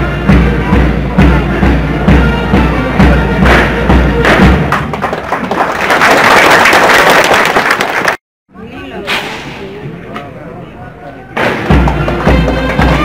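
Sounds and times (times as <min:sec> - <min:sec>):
marching band music: 0:00.0 - 0:05.4, 0:11.4 - 0:13.0
loud even hissing: 0:09.0 - 0:09.9
bass drum beat: 0:11.7 - 0:13.0.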